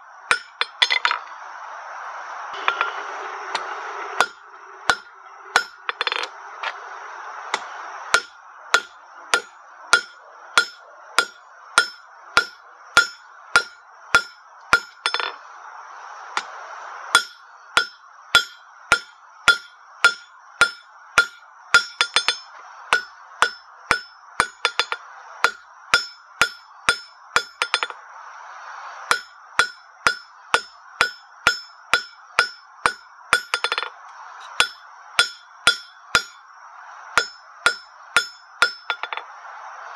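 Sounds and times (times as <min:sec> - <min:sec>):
hammer striking metal on anvil: 0:00.3 - 0:01.2, 0:02.6 - 0:06.3, 0:07.5 - 0:15.4, 0:17.1 - 0:28.0, 0:29.1 - 0:36.4, 0:37.2 - 0:39.3
anvil ringing: 0:02.6 - 0:03.1, 0:04.2 - 0:06.3, 0:08.1 - 0:15.4, 0:17.2 - 0:28.0, 0:29.1 - 0:33.9, 0:34.6 - 0:36.4, 0:37.2 - 0:39.2.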